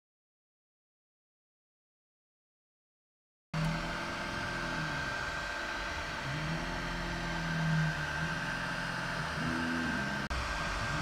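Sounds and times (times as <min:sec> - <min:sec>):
fan whine: 0:03.6 - 0:11.0
stepper motors whining: 0:03.6 - 0:11.0.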